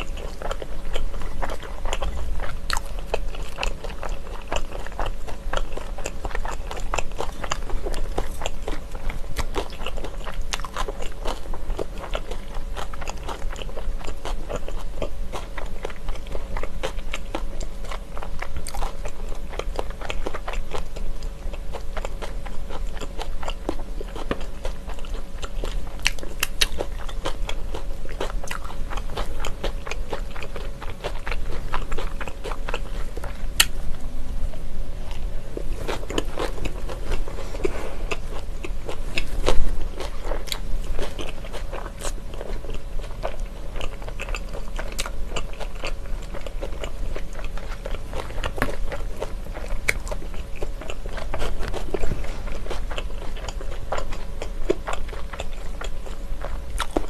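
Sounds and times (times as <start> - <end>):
crunchy biting and chewing: 0.0 - 57.0
faint steady hum: 0.0 - 57.0.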